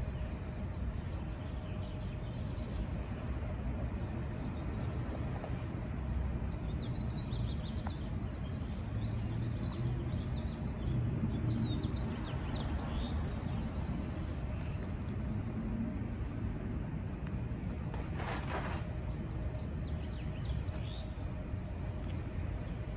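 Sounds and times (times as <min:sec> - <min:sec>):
low outdoor rumble: 0:00.0 - 0:22.9
small birds chirping: 0:18.9 - 0:22.9.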